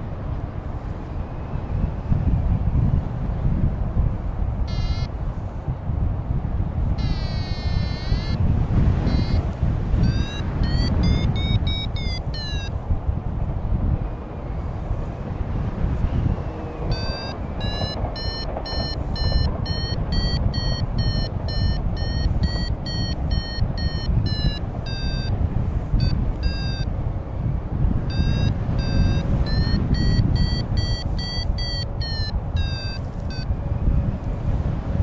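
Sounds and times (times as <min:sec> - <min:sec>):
wind rushing on microphone: 0:00.0 - 0:35.0
variometer beeping: 0:04.6 - 0:05.2, 0:07.0 - 0:12.8, 0:16.9 - 0:26.9, 0:28.1 - 0:33.6.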